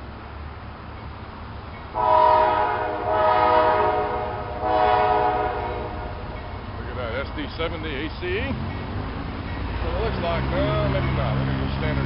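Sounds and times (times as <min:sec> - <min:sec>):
low rumble of train: 0:00.0 - 0:12.0
locomotive horn chord: 0:02.0 - 0:06.5.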